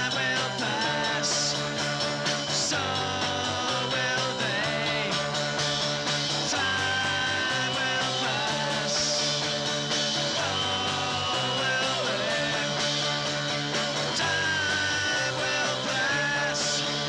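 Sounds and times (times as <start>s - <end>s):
punk rock band playing: 0.0s - 17.0s.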